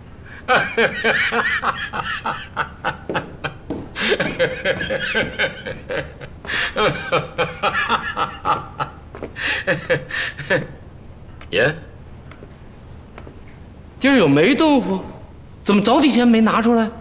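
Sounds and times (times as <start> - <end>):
man laughing loudly: 0.4 - 10.8.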